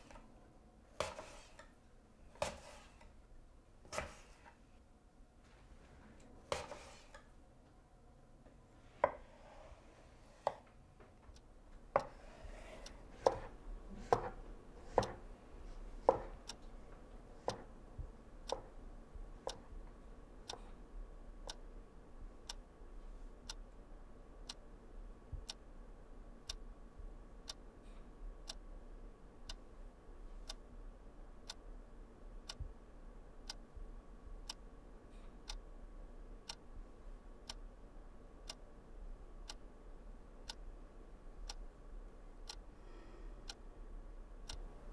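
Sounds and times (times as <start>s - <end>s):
knife on wooden cutting board: 1.0s - 1.6s, 2.4s - 3.0s, 6.5s - 7.2s
clock ticking: 11.3s - 13.5s, 17.4s - 19.8s, 21.4s - 21.6s, 24.4s - 24.7s, 25.3s - 25.6s, 26.4s - 26.6s, 27.4s - 27.6s, 28.4s - 28.6s, 30.4s - 30.6s, 31.4s - 31.6s, 32.4s - 32.8s, 33.4s - 34.7s, 35.4s - 35.6s, 36.4s - 36.7s, 37.4s - 37.7s, 38.4s - 38.7s, 39.4s - 39.7s, 40.4s - 40.7s, 41.4s - 41.6s, 42.4s - 42.6s, 44.4s - 44.7s.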